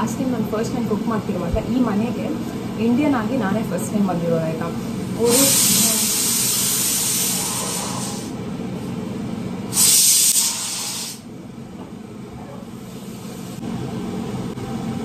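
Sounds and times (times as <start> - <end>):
pressure cooker hissing steam: 5.1 - 8.3, 9.7 - 11.2.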